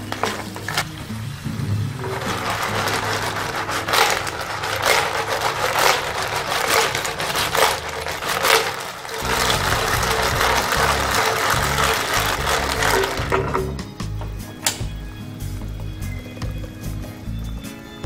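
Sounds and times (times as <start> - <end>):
shells clattering in frying pan: 0.0 - 1.1, 2.0 - 14.9
steady sizzle: 0.0 - 13.4.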